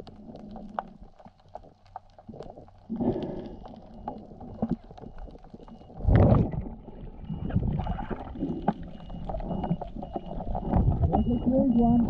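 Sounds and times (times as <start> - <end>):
low underwater surge: 5.8 - 11.4.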